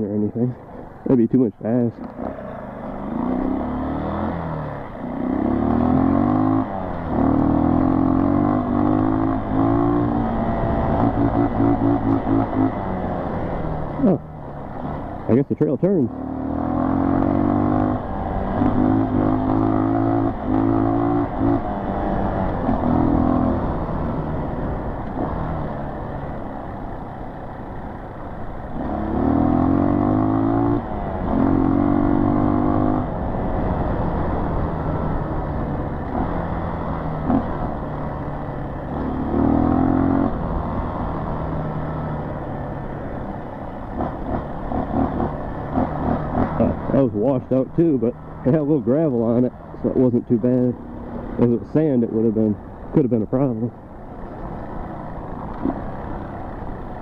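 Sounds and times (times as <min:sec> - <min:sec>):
dirt bike engine accelerating: 0:00.0 - 0:57.0.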